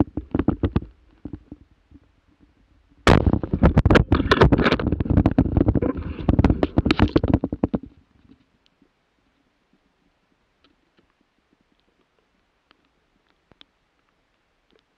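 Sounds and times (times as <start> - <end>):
twigs and brush rubbing microphone: 3.4 - 8.4.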